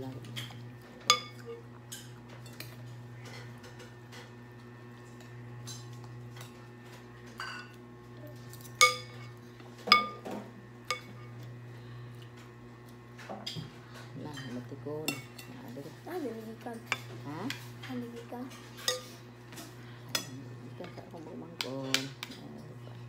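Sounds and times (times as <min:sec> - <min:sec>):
metal spoon clinking on glass bowl: 0:08.8 - 0:09.2, 0:09.9 - 0:10.2, 0:18.8 - 0:19.1.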